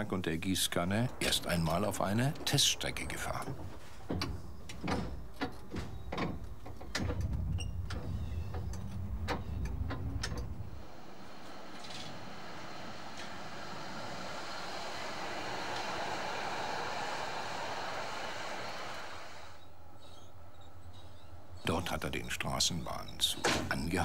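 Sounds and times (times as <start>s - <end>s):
tram rolling along track: 0.0s - 24.0s
tram rumble: 0.0s - 24.0s
rising whine: 6.9s - 20.6s.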